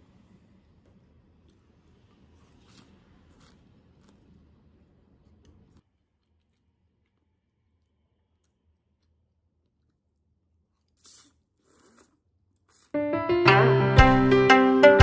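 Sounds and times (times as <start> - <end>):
slurping noodles: 10.8 - 13.0
piano-like keyboard music: 13.0 - 15.0.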